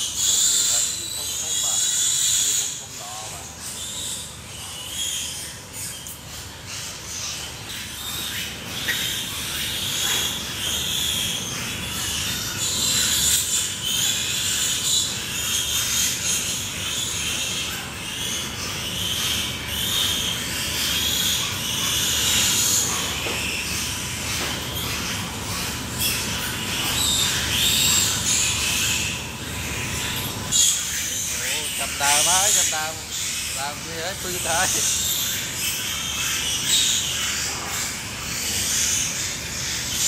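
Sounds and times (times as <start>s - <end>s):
pigs squealing: 0.0s - 40.0s.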